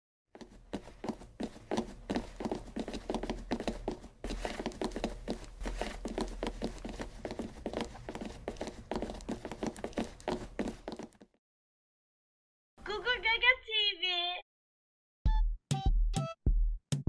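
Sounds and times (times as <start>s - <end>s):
cartoon light footsteps patter: 0.4s - 11.4s.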